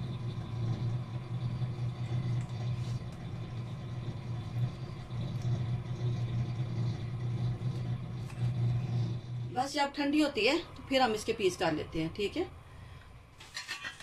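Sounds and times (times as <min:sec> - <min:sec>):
low mechanical hum: 0:00.0 - 0:14.0
knife scraping on steel tray: 0:13.4 - 0:14.0.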